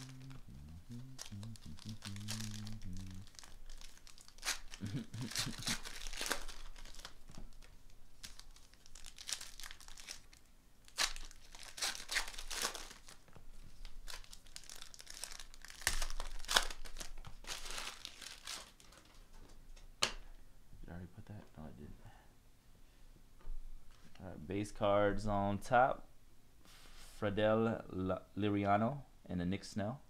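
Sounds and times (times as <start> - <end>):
foil wrappers tearing and crinkling: 0.0 - 19.2.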